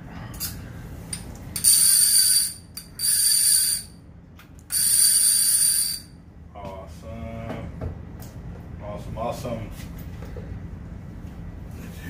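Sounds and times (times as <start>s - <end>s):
fishing reel ratchet buzzing: 1.6s - 4.0s, 4.7s - 6.1s.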